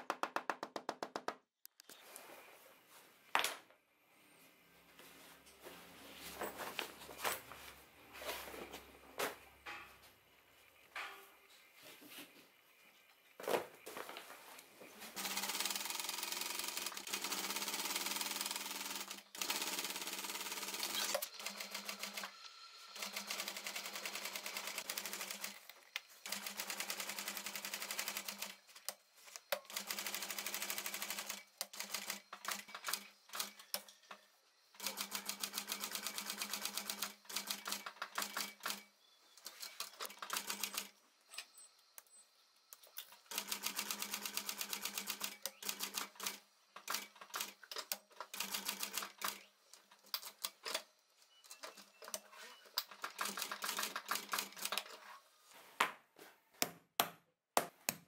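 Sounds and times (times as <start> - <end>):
sewing machine motor hum: 15.1 - 28.9
sewing machine needle clatter: 51.5 - 55.0.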